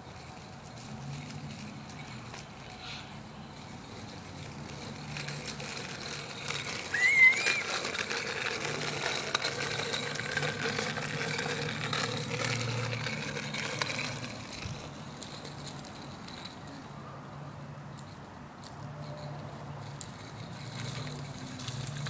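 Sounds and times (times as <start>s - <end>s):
bicycle rattling over asphalt: 0.0s - 22.0s
high squeal: 6.8s - 7.9s.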